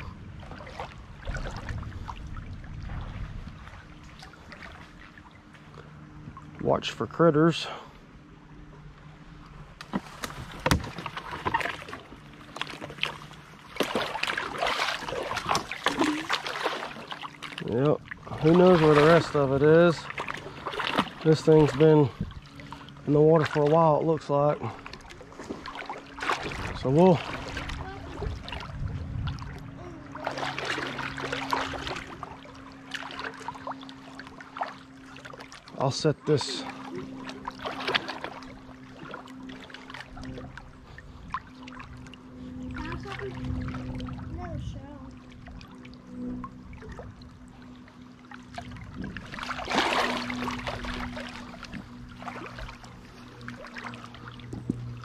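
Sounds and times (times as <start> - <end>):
steady low hum: 0.0 - 55.0
water splashing and sloshing: 0.0 - 55.0.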